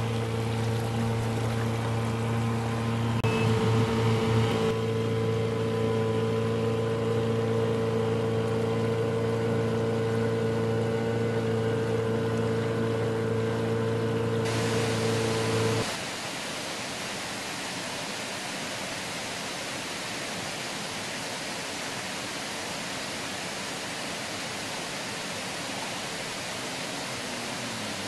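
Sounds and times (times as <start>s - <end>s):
outboard motor running: 0.0s - 16.0s, 26.1s - 28.0s
hull hissing through water: 10.5s - 16.1s.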